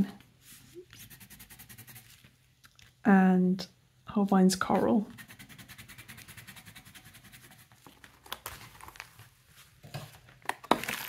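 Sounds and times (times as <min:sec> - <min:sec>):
pencil scribbling on paper: 0:00.8 - 0:02.2, 0:05.1 - 0:07.8.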